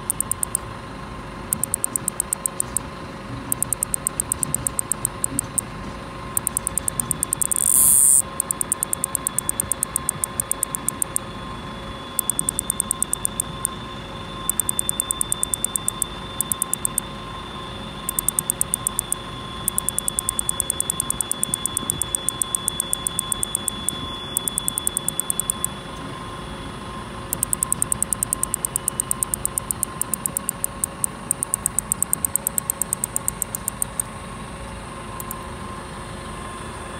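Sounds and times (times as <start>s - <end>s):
cicada high fast ticking: 0.0s - 0.6s, 1.5s - 2.8s, 3.5s - 5.6s, 6.4s - 11.2s, 12.1s - 13.8s, 14.5s - 17.1s, 18.1s - 25.8s, 27.3s - 34.0s.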